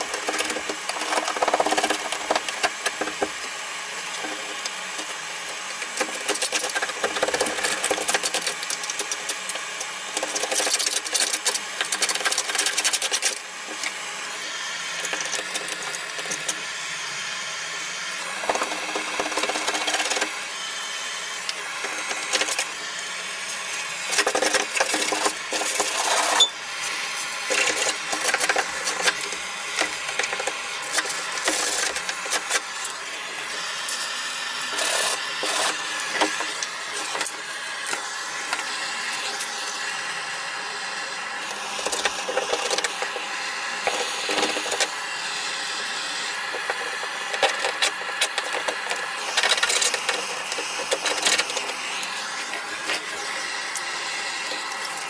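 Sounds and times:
blowtorch hissing: 0:13.4 - 0:55.0.

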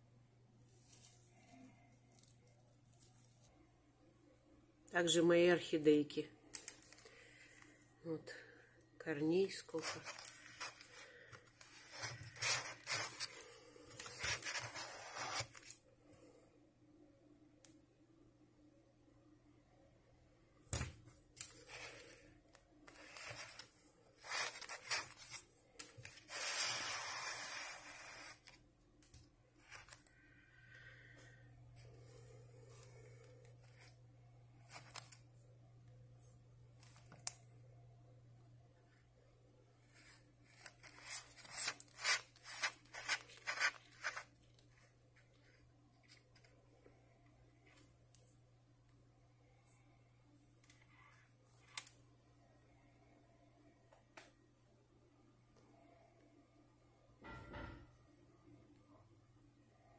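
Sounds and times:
plastic pot scraping and rustling: 0:09.8 - 0:15.8, 0:22.9 - 0:28.6
hand scraping plastic flower pot: 0:11.6 - 0:15.8.

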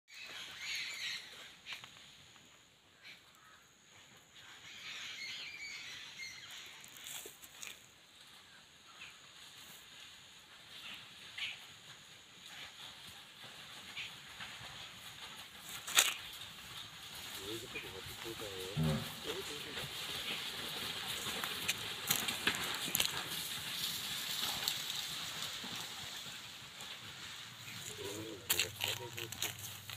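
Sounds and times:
birds calling: 0:00.1 - 0:02.0, 0:27.6 - 0:29.9
faint outdoor ambience: 0:00.1 - 0:29.9
rustle through dry grass: 0:00.1 - 0:29.9.

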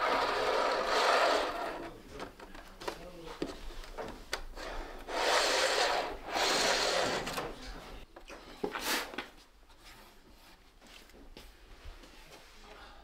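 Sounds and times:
model train wheels rolling on rails: 0:00.0 - 0:02.0, 0:04.6 - 0:07.6.

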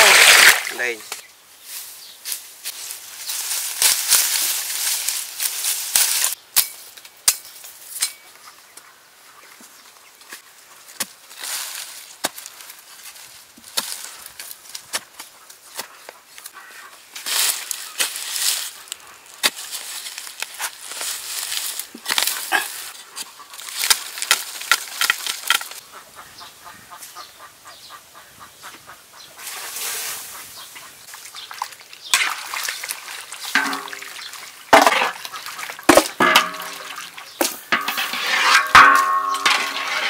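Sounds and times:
water splashing in metal wok: 0:00.0 - 0:01.0, 0:31.5 - 0:39.9
stick digging dry soil: 0:10.8 - 0:16.5, 0:17.2 - 0:25.8.

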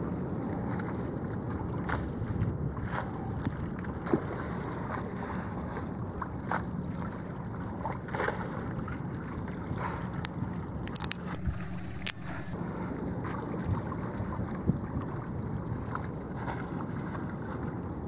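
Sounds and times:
wind: 0:00.0 - 0:18.0
water splashing against hull: 0:06.2 - 0:18.0
water noise: 0:08.8 - 0:17.0
low hum: 0:11.0 - 0:12.6.

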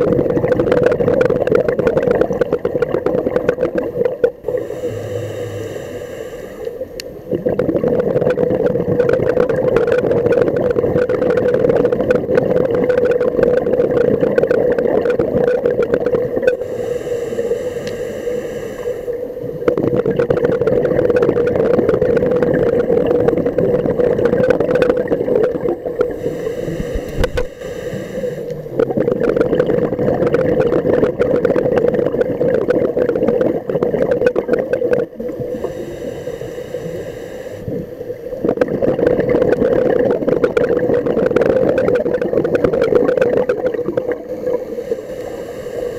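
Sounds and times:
bubbling exhalations underwater: 0:00.0 - 0:05.6, 0:06.8 - 0:16.8, 0:19.4 - 0:27.5, 0:28.1 - 0:36.0, 0:37.6 - 0:44.8
steady hum: 0:03.4 - 0:09.6, 0:15.3 - 0:40.4, 0:42.3 - 0:45.9
regulator hissing inhalations: 0:04.5 - 0:07.2, 0:16.6 - 0:19.6, 0:26.0 - 0:28.8, 0:35.4 - 0:38.3, 0:44.4 - 0:45.9.

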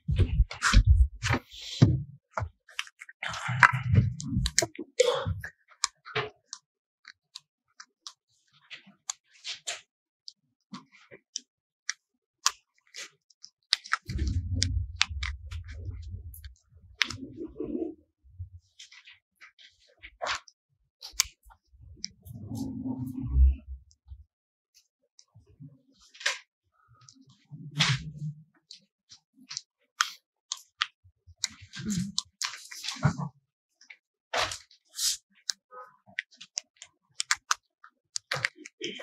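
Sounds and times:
low rumbling thuds: 0:00.1 - 0:02.1
small clicks and taps: 0:35.4 - 0:38.8.

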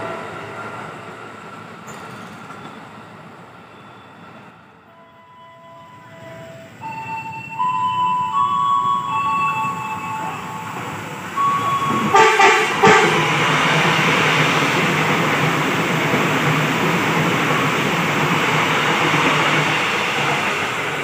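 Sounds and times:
train wheels and motors rumbling: 0:00.0 - 0:04.5
train horn blasts: 0:11.4 - 0:13.5.

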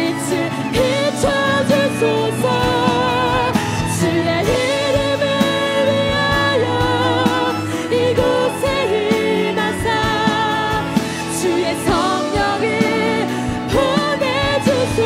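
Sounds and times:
worship band playing: 0:00.0 - 0:15.0.

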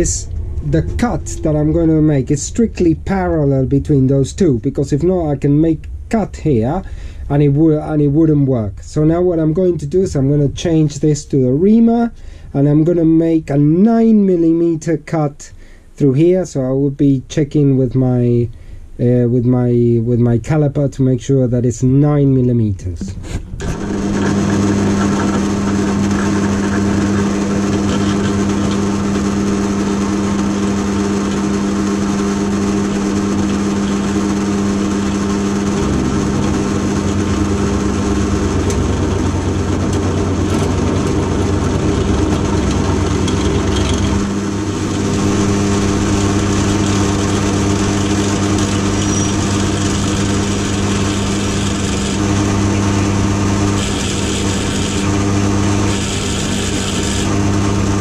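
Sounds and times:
deeper rumble: 0:00.0 - 0:11.8, 0:23.0 - 0:47.6
pillar drill motor humming: 0:23.2 - 0:58.0.

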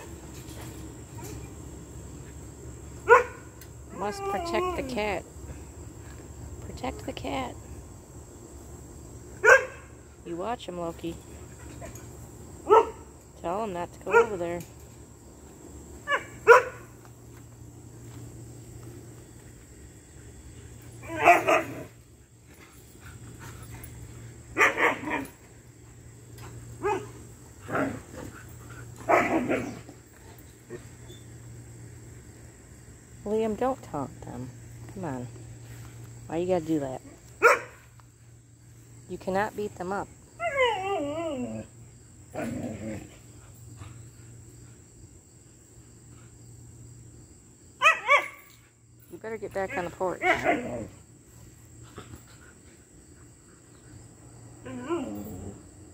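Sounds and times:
dog barking: 0:03.1 - 0:03.4, 0:09.4 - 0:09.8, 0:12.7 - 0:13.0, 0:16.1 - 0:16.8, 0:37.4 - 0:37.8
dog whining: 0:40.4 - 0:41.7, 0:54.6 - 0:55.6.

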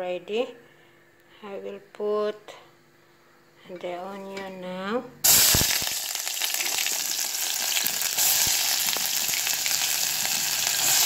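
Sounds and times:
crackles and pops of frying: 0:05.2 - 0:11.0
onion sizzling in hot oil: 0:05.2 - 0:11.0.

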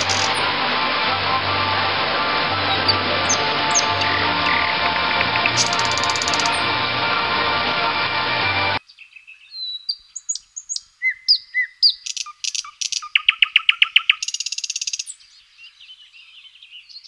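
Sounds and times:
songbird singing: 0:00.0 - 0:00.9, 0:02.5 - 0:06.8, 0:08.8 - 0:17.0.

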